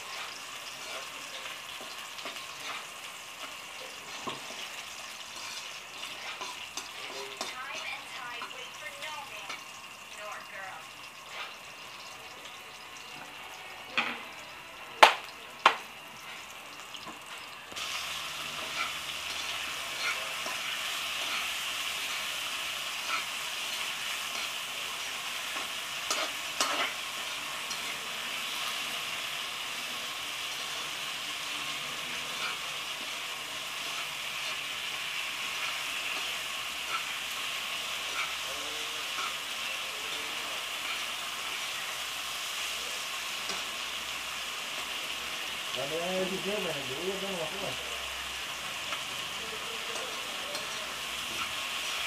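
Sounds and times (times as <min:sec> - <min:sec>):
food sizzling in a wok: 0:00.0 - 0:52.0
utensil taps on pan: 0:15.0 - 0:15.8.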